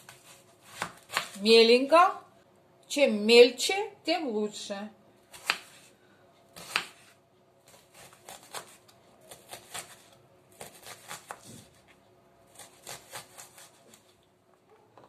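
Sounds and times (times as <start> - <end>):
knife chopping on wooden board: 0.0 - 1.4, 5.3 - 5.8, 6.6 - 7.1.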